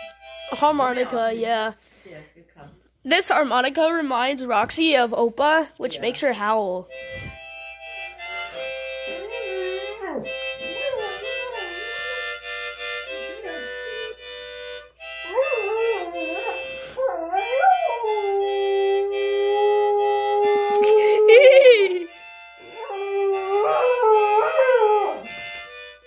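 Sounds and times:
harmonica playing chords: 0.0s - 1.8s, 6.8s - 26.0s
dog howling: 9.0s - 12.4s, 15.2s - 22.0s, 22.7s - 25.4s.

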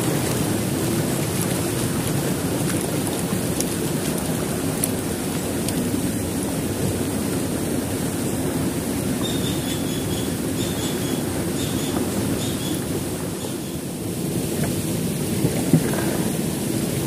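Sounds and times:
boat motor droning: 0.0s - 17.0s.

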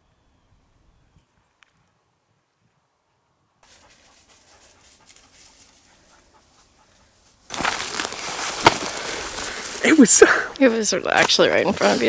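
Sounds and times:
faint footsteps: 3.6s - 12.0s
rustling and crashing through brush: 7.4s - 10.4s.

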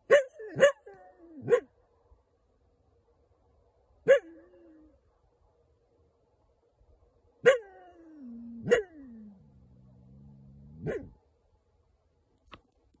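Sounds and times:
coyote barking and howling: 0.0s - 1.7s, 4.0s - 5.0s, 7.4s - 11.2s.

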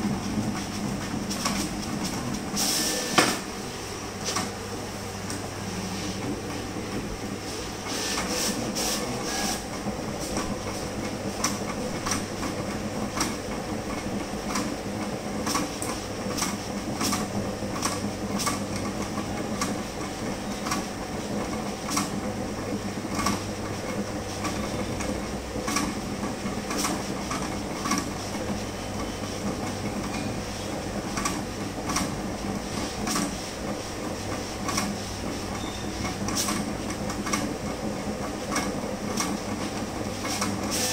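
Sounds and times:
plotter mechanical hum: 0.0s - 40.9s
sharp plotter clicks: 11.4s - 13.4s, 15.4s - 18.9s, 21.8s - 22.2s, 24.4s - 26.0s, 26.7s - 28.1s, 31.1s - 32.2s, 33.0s - 33.4s, 36.0s - 37.8s, 38.5s - 40.9s.

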